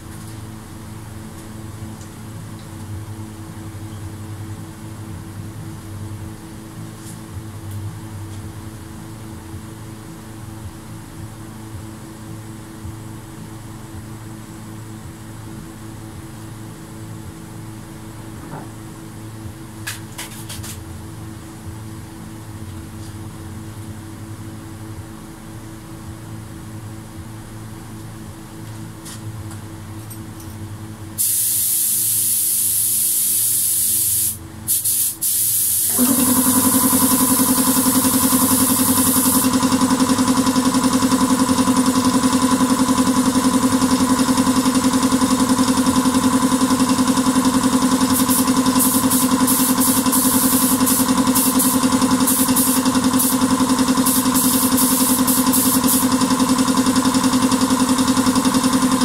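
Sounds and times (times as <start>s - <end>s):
steady machine hum: 0.0s - 59.0s
spray gun hissing: 31.2s - 39.6s, 48.1s - 56.2s.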